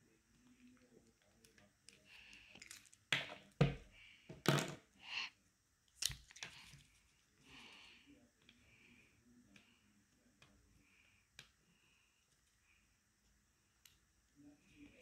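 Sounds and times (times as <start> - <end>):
pens knocking on wooden table: 3.2 - 4.8.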